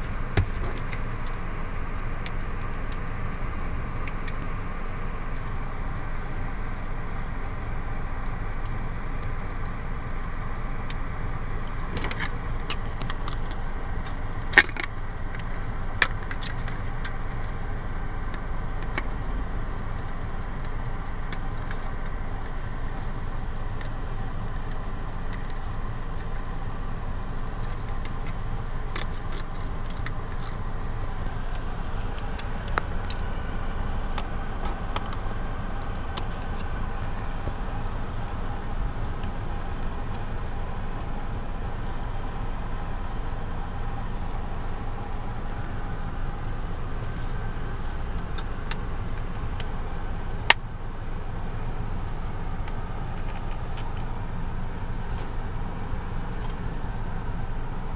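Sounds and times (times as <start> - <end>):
steady low rumble: 0.0 - 57.9.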